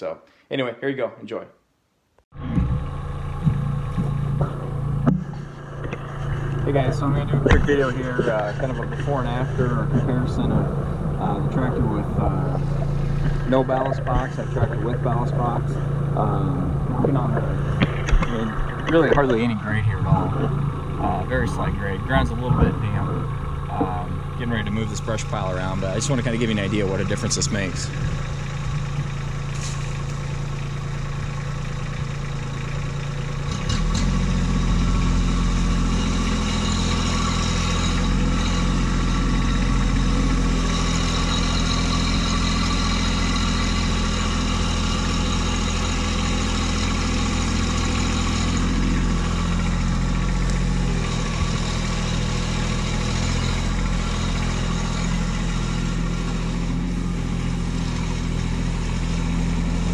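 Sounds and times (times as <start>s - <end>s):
tractor diesel engine revving: 2.3s - 59.9s.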